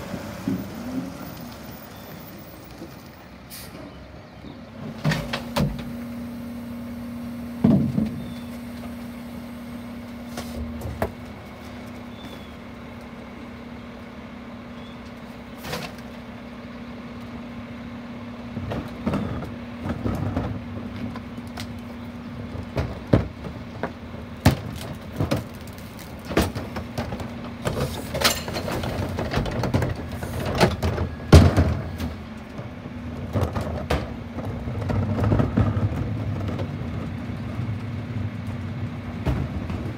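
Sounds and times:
garbage truck idling: 0.0 - 39.9
trash knocking and clattering: 7.6 - 8.9, 18.5 - 37.8, 39.0 - 39.9.

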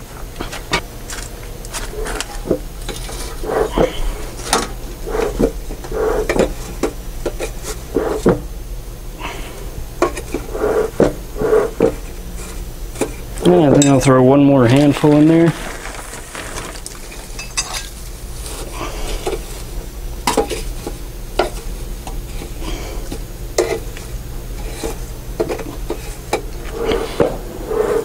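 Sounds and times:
hay rustling in metal chamber: 14.6 - 18.7.

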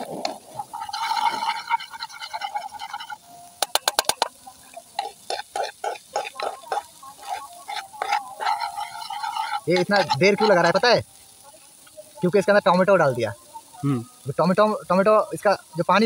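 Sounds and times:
knife scraping frying pan: 0.0 - 10.8.

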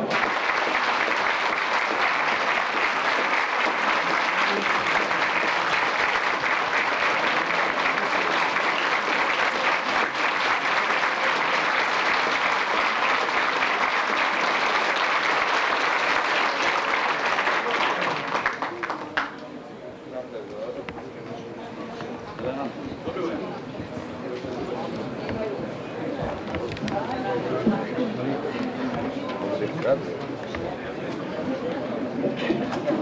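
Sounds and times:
audience applause: 0.0 - 19.4.

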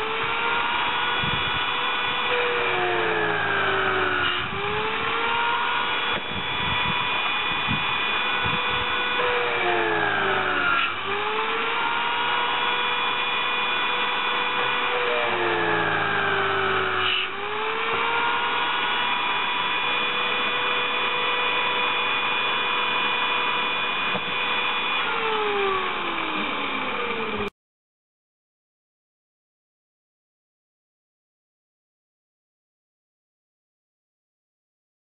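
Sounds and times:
electric drill whining: 0.0 - 27.5
drill click: 1.2 - 27.5.

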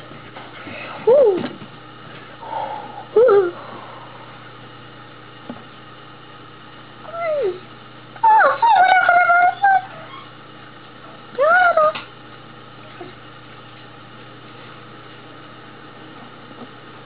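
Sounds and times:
steady television hum: 0.0 - 17.0
cartoon dog whining and howling: 8.2 - 10.3.

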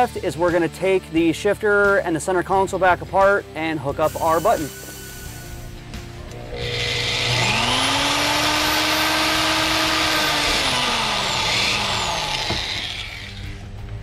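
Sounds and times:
cordless drill drilling into plastic: 6.6 - 13.6.

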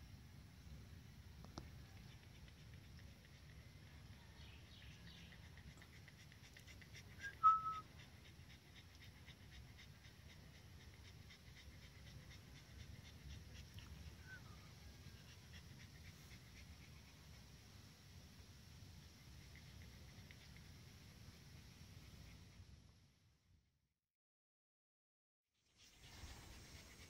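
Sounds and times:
puppy panting: 1.5 - 17.7, 19.0 - 22.6
puppy whining: 6.6 - 7.9.

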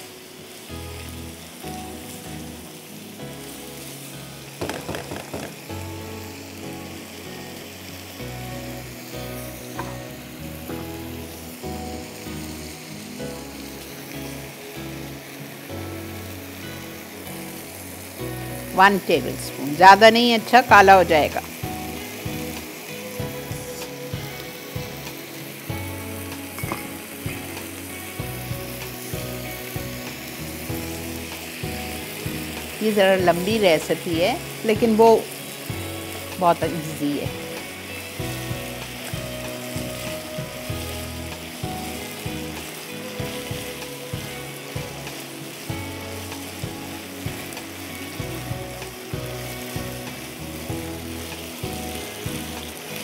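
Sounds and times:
beef sizzling in a frying pan: 0.0 - 53.0
spatula knocking against pan: 4.6 - 5.6.

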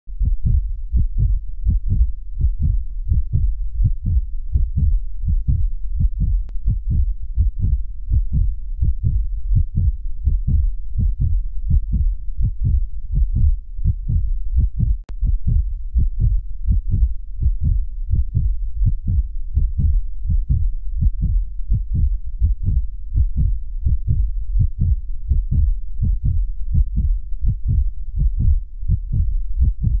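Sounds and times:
heartbeat thumps: 0.1 - 30.0.

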